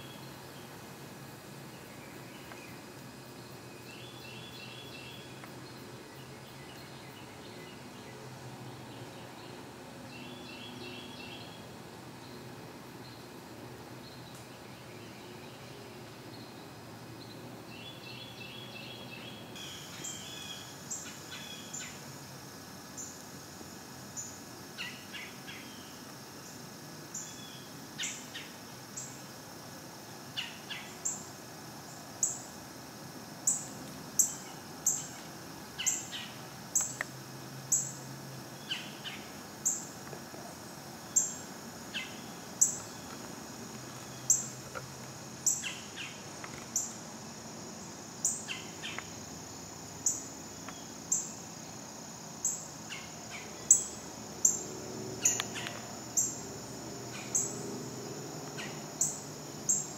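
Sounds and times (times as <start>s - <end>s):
insects droning: 0.0s - 59.9s.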